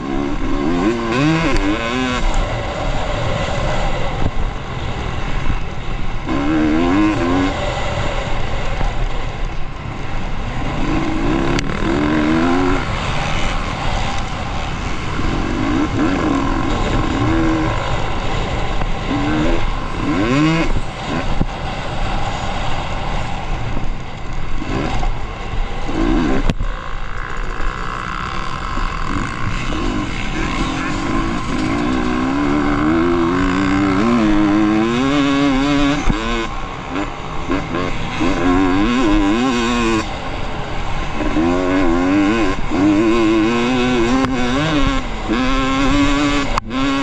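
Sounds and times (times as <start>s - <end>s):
motorcycle engine revving: 0.0s - 47.0s
wind noise: 0.0s - 47.0s.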